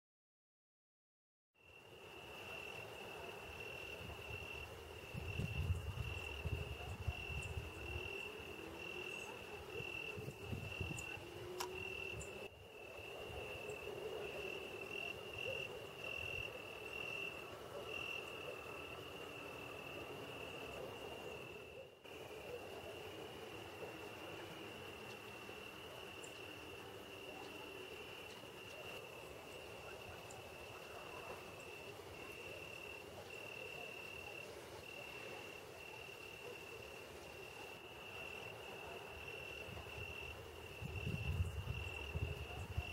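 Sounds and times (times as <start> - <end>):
crickets chirping: 1.6 - 42.9.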